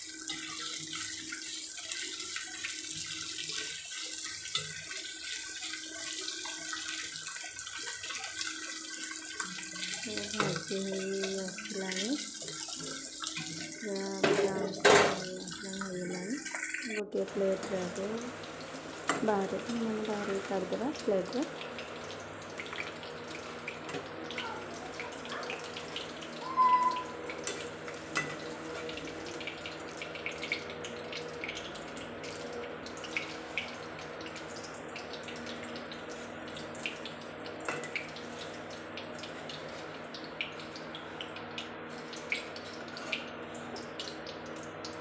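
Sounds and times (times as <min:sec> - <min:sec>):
vegetables sizzling in oil: 0:00.0 - 0:45.0
high squeak: 0:26.4 - 0:27.2.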